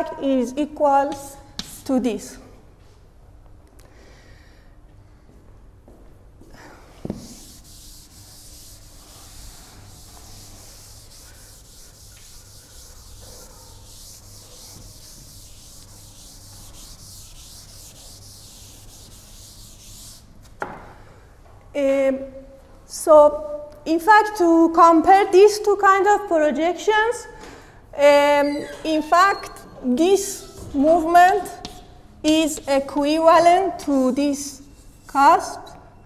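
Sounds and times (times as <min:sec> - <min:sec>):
eraser rubbing on chalkboard: 0:01.1 - 0:01.9, 0:07.1 - 0:20.3, 0:30.3 - 0:33.2.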